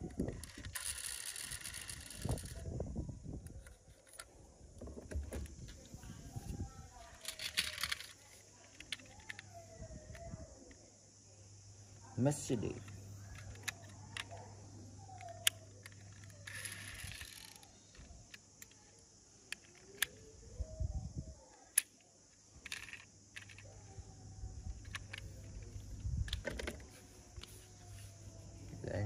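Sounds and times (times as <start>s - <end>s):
toy parts clicking together: 0.0s - 2.7s, 3.4s - 4.4s, 7.0s - 10.3s, 13.3s - 20.3s, 21.5s - 24.0s, 24.6s - 27.6s.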